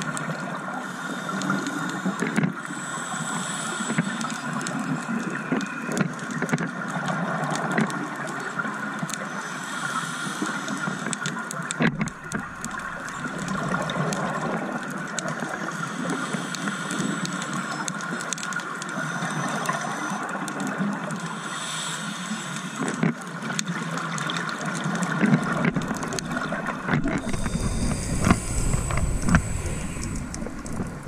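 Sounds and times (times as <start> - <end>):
underwater gurgling hiss: 0.0 - 31.0
low rumbling: 25.7 - 31.0.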